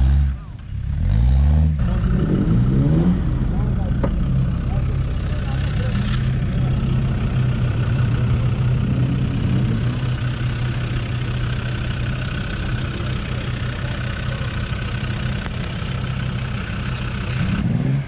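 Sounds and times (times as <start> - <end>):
engine idling inside car: 3.5 - 8.8, 9.7 - 17.6.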